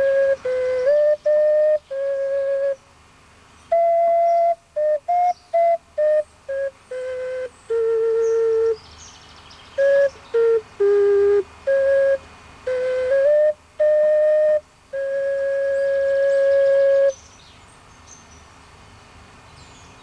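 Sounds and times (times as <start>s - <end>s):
ocarina playing a hymn melody: 0.0s - 2.9s, 3.7s - 8.8s, 9.7s - 17.2s
faint birdsong: 2.7s - 10.9s, 15.7s - 20.0s.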